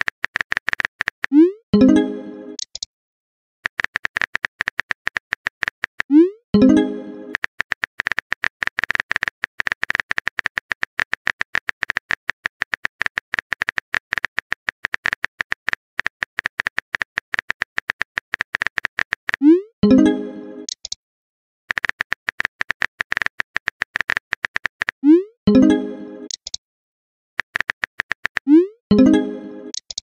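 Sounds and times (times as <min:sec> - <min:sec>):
phone keyboard typing clicks: 0:00.0 - 0:01.4, 0:02.6 - 0:02.9, 0:03.6 - 0:19.5, 0:20.6 - 0:21.0, 0:21.7 - 0:25.0, 0:26.3 - 0:26.6, 0:27.4 - 0:30.0.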